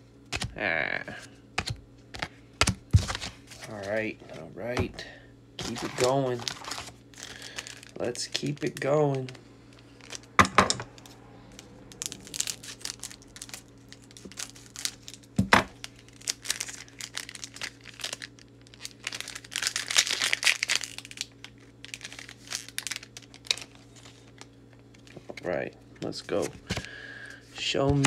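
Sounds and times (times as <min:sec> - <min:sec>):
foil wrapper crinkling and tearing: 0:05.6 - 0:25.4.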